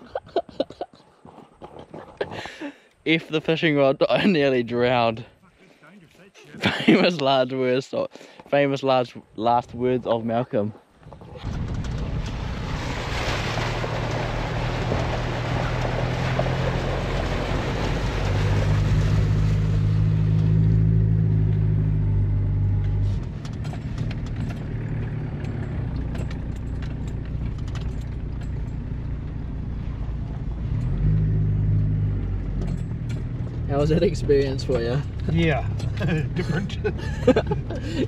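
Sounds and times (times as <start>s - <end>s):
vehicle engine driving: 11.0s - 38.0s
light rattles: 23.0s - 29.4s, 32.5s - 38.0s.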